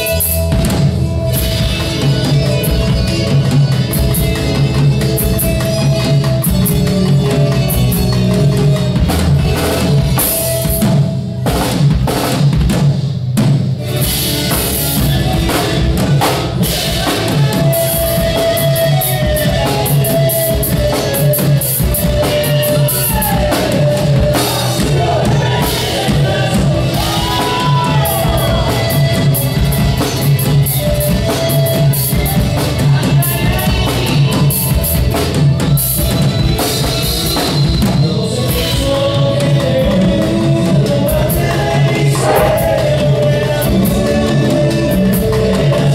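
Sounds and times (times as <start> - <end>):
drum kit beat: 0.0 - 45.9
strummed charango and guitars: 0.0 - 45.9
gliding melody line: 42.2 - 43.8.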